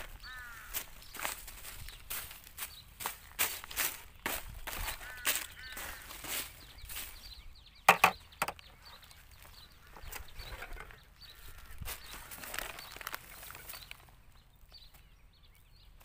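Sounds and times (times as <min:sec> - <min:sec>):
rustling of dry plastic: 0:00.0 - 0:07.3, 0:07.9 - 0:14.4
hard objects clattering: 0:07.9 - 0:08.6.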